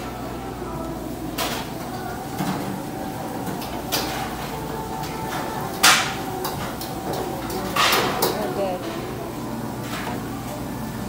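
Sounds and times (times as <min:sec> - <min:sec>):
tongs and dishes clinking: 0:03.4 - 0:09.2.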